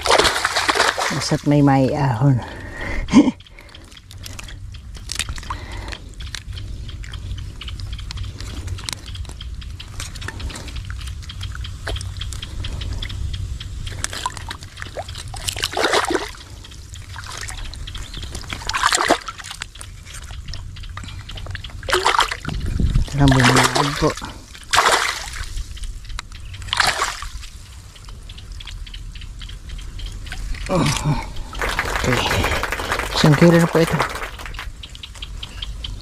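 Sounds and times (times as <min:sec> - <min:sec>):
water splashes: 0:00.0 - 0:02.2, 0:14.0 - 0:16.5, 0:18.4 - 0:20.3, 0:21.8 - 0:25.5, 0:26.7 - 0:27.5, 0:30.6 - 0:34.7
water sloshing and trickling: 0:00.0 - 0:02.6, 0:14.0 - 0:25.6, 0:26.6 - 0:27.7
steady low rumble: 0:00.0 - 0:36.0.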